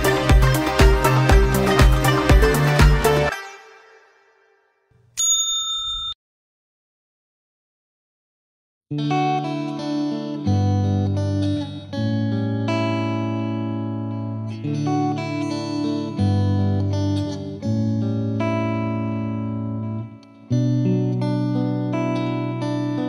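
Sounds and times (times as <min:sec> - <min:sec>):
instrumental music with sustained chords: 0:00.0 - 0:04.1, 0:08.9 - 0:23.0.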